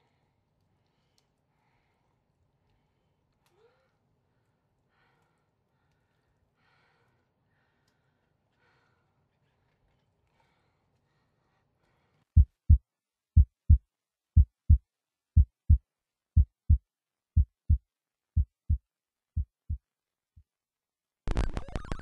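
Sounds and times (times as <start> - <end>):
heartbeat thumping: 12.4 - 12.8, 13.4 - 13.8, 14.4 - 14.8, 15.4 - 15.8, 16.4 - 16.8, 17.4 - 17.8, 18.4 - 18.8, 19.4 - 19.8.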